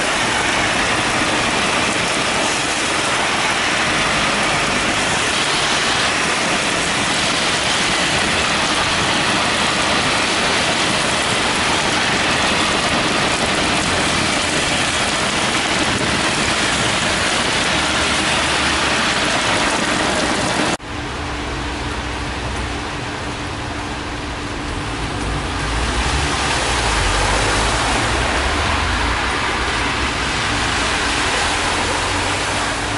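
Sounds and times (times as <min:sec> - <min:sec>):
heavy rain on street: 0:00.0 - 0:32.9
low traffic rumble: 0:20.8 - 0:32.9.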